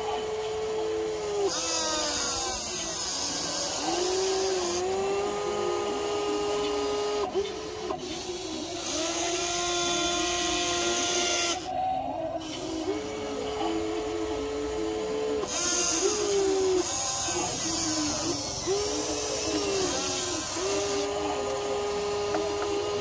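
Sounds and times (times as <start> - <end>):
toy excavator motors whining: 0.0 - 23.0
hissy grinding: 15.4 - 23.0.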